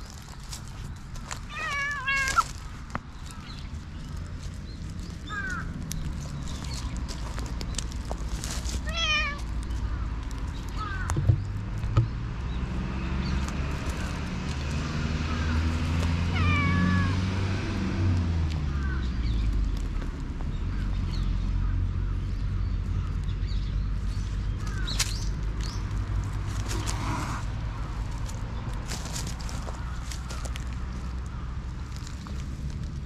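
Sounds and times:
cat meowing: 1.5s - 2.5s, 8.8s - 9.4s, 16.3s - 17.2s.

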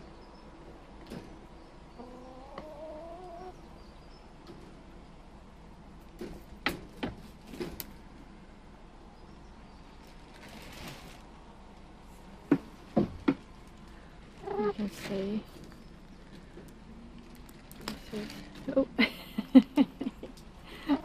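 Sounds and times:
hen calling: 2.0s - 3.7s, 14.4s - 15.0s.

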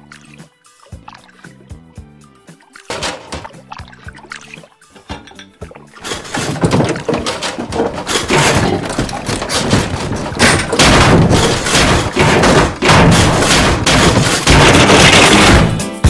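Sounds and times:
thuds and crashes: 2.9s - 3.6s, 5.9s - 16.0s.

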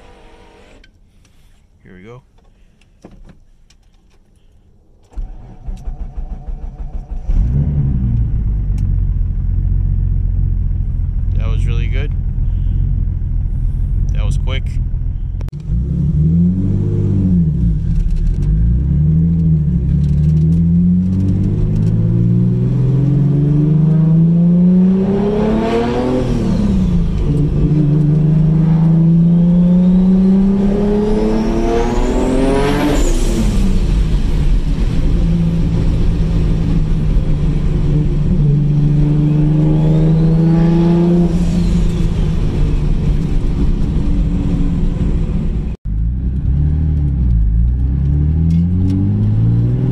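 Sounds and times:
car engine accelerating: 5.1s - 49.9s
turbocharger whine: 20.0s - 45.5s.

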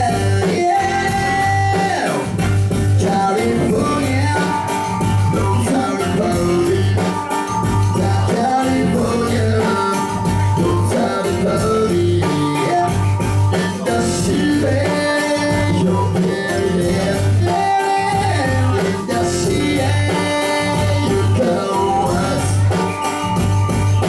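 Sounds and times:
person singing into a microphone: 0.0s - 23.2s
steady bass beat: 0.0s - 24.0s
synthesizer keyboard playing: 0.0s - 24.0s.

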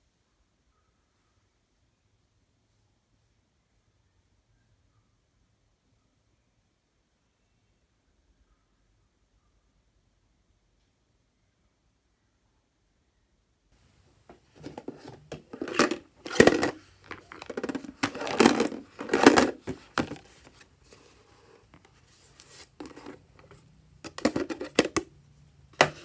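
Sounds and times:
plastic box clicks and knocks: 14.3s - 20.3s, 22.8s - 25.1s, 25.8s - 26.0s.

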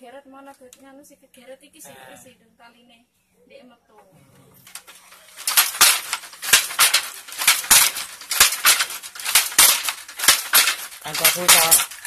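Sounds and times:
handloom clacking: 4.6s - 12.0s.

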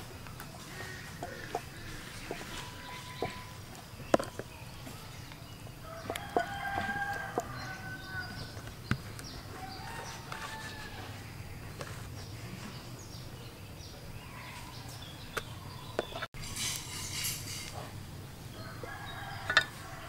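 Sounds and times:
rooster crowing: 5.8s - 8.6s, 9.5s - 11.2s, 18.5s - 20.0s.

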